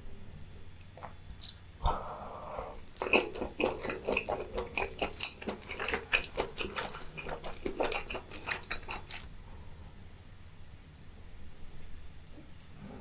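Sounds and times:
wet squishy chewing: 2.6 - 9.3.

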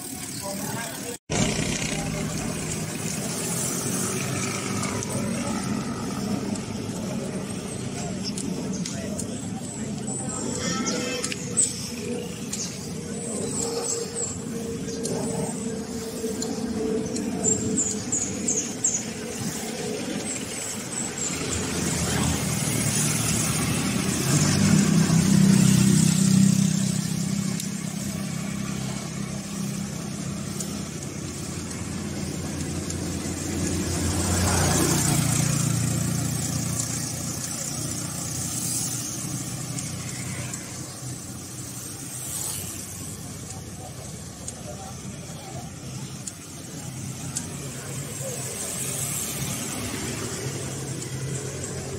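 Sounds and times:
motor vehicle engine hum: 0.0 - 51.9
wind and road noise: 0.0 - 51.9.

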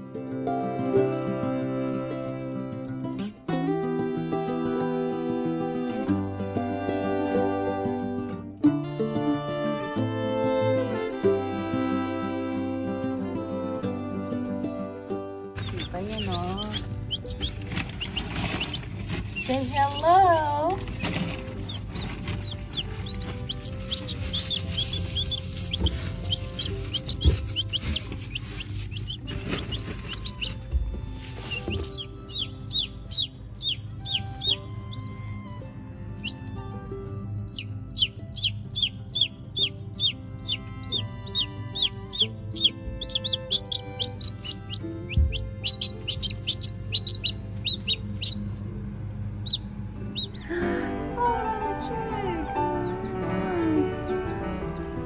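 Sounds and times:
background music: 0.0 - 55.0
chick peeping: 15.6 - 35.3, 36.2 - 36.4, 37.5 - 48.7, 49.4 - 50.5.

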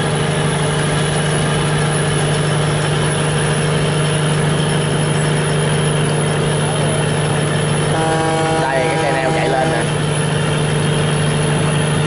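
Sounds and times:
barge engine running: 0.0 - 12.0.

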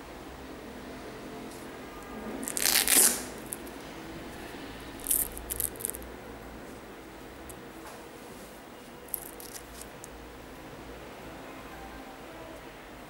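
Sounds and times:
velcro strap ripping open: 2.4 - 3.8, 5.0 - 6.0, 9.1 - 10.0.

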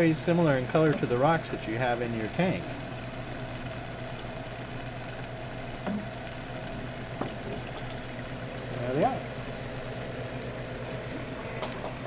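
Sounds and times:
aquarium equipment hum: 0.0 - 12.0.

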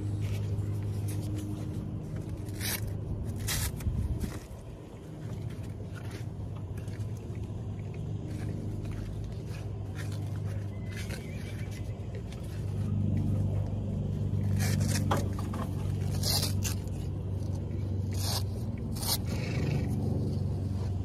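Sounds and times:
low engine hum: 0.0 - 21.0
velcro straps ripping: 2.3 - 4.5, 15.8 - 19.7.

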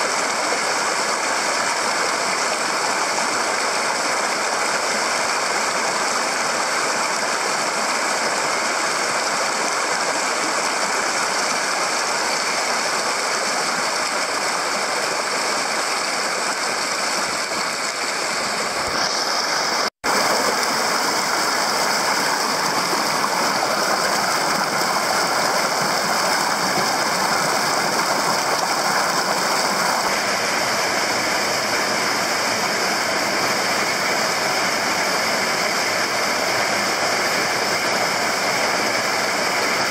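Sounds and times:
stream rushing over boulders: 0.0 - 39.9.

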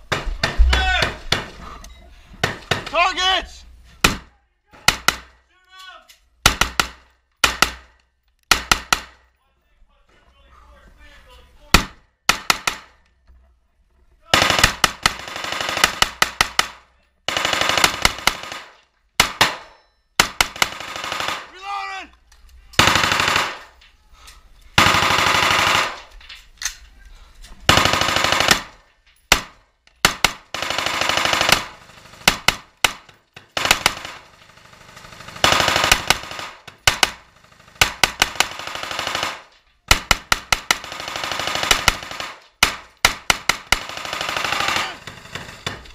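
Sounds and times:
rifle shots: 6.4 - 9.2, 11.8 - 13.0, 14.3 - 21.5, 22.8 - 23.8, 24.8 - 26.1, 27.7 - 45.8
automatic gunfire bursts: 14.4 - 19.6, 20.2 - 21.5, 22.8 - 23.7, 24.8 - 26.0, 27.7 - 28.7, 29.3 - 33.0, 33.6 - 45.3.

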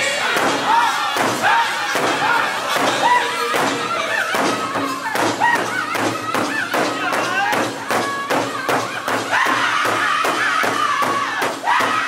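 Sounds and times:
men singing high sliding lines: 0.0 - 7.7
large drum beating: 0.4 - 12.0.

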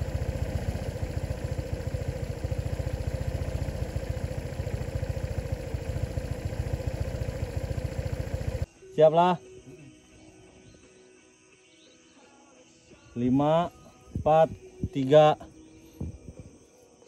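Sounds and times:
small engine idling: 0.0 - 8.7.

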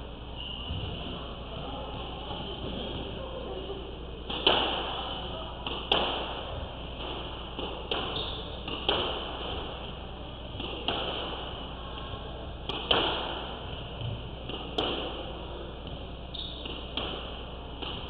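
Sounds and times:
squash ball hits echoing: 4.2 - 18.0.

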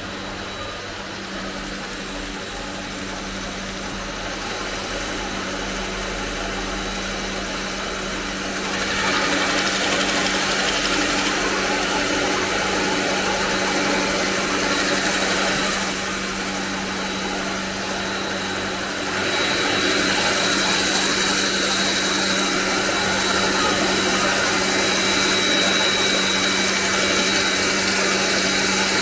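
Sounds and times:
belt sander motor hum: 0.0 - 29.0
wood sanding hiss: 8.1 - 29.0.

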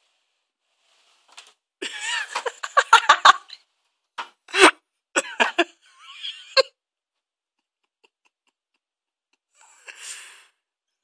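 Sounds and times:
soft rustling: 0.0 - 1.6
person laughing stifled: 1.8 - 3.6, 4.5 - 6.7.

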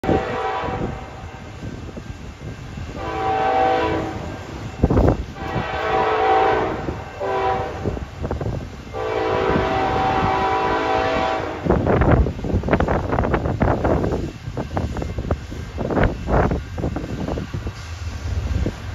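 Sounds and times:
locomotive air horn blasts: 0.0 - 1.2, 2.9 - 4.4, 5.4 - 8.1, 8.9 - 11.9
wind buffeting microphone: 0.0 - 18.9.

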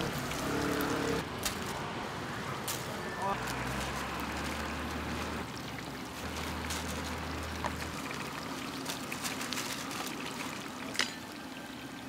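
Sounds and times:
hot oil bubbling and sizzling: 3.5 - 12.0.

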